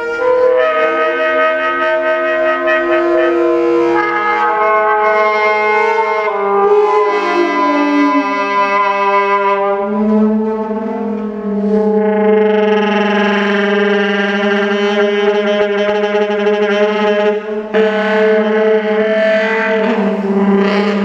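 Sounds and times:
saxophone sustained tones: 0:00.0 - 0:21.0
drawn-out percussion tones: 0:06.2 - 0:21.0.

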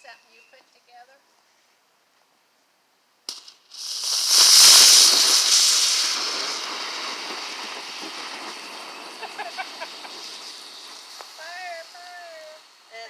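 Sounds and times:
firework fizzing: 0:03.3 - 0:13.0.

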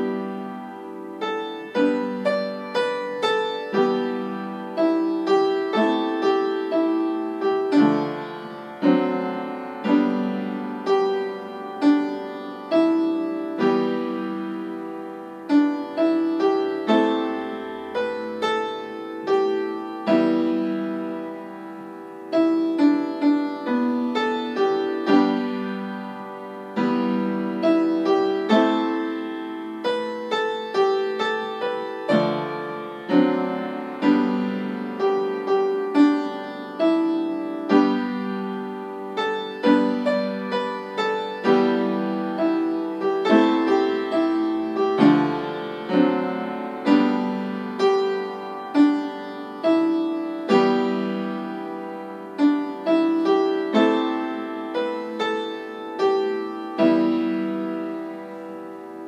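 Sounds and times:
piano melody: 0:00.0 - 0:59.0.

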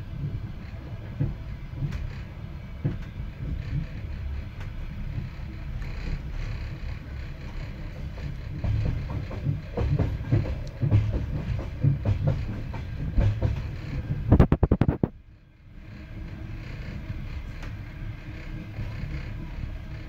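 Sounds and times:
train rumble with wheel knocks: 0:00.0 - 0:20.0
loud wheel clacks: 0:05.2 - 0:15.2.

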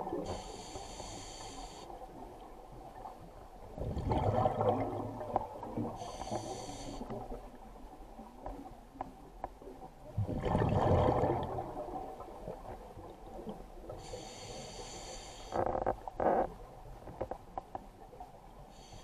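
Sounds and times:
hissing regulator inhale: 0:00.2 - 0:01.9, 0:06.0 - 0:07.2, 0:14.0 - 0:15.8.

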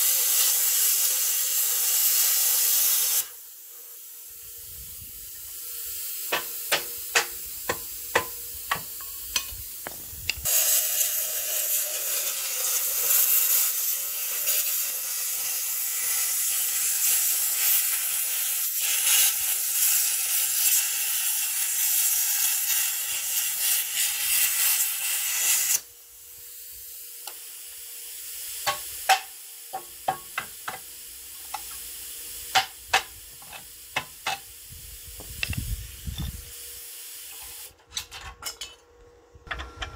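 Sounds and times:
plasma cutter hissing: 0:00.0 - 0:37.8
hammer tapping on steel: 0:06.3 - 0:10.0.

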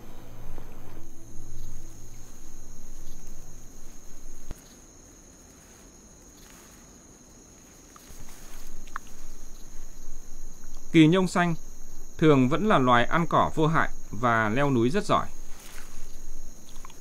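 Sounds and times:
low background music: 0:00.0 - 0:04.5
insect chirps: 0:00.0 - 0:17.0
insects buzzing: 0:00.0 - 0:17.0.

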